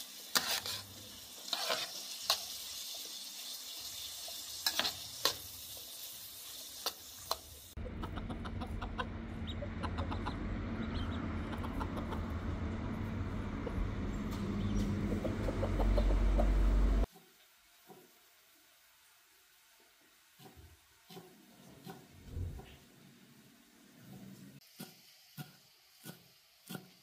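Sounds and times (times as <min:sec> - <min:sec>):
onions sizzling in a metal pan: 0:00.0 - 0:07.8, 0:24.6 - 0:27.0
ducklings peeping: 0:07.8 - 0:12.4, 0:14.4 - 0:16.6
low rumble: 0:07.8 - 0:17.1.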